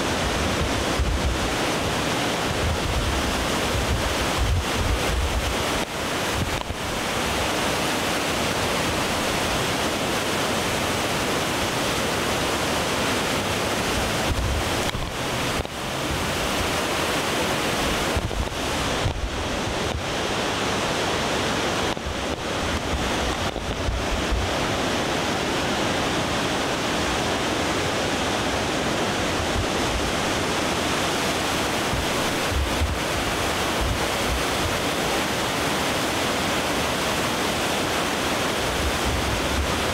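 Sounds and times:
river rapids rushing: 0:00.0 - 0:39.9
wind buffeting microphone: 0:00.1 - 0:07.0, 0:13.1 - 0:34.9.

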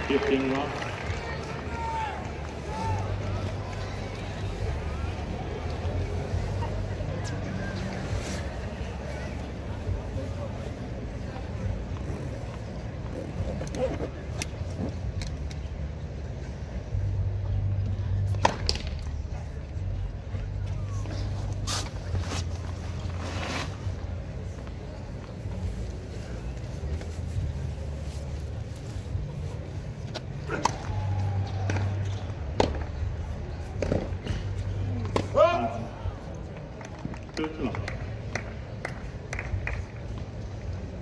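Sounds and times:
low crowd rumble: 0:00.0 - 0:41.0.

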